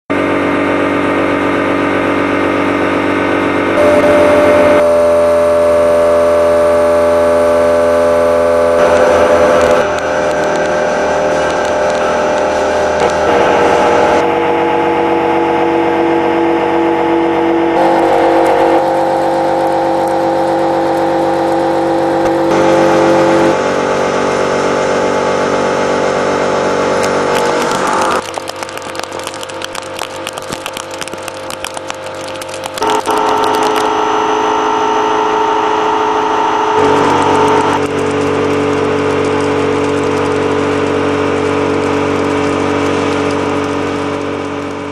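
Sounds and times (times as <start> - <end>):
milling cutter whining: 2.6 - 24.3, 32.7 - 44.9
dense crackle of fine clicks: 8.8 - 13.5, 27.0 - 34.0, 36.8 - 44.9.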